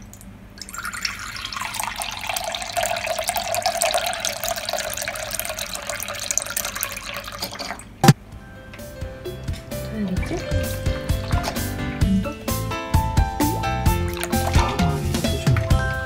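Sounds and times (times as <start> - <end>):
tap water running into sink: 0.6 - 8.2, 9.8 - 11.8, 13.9 - 15.8.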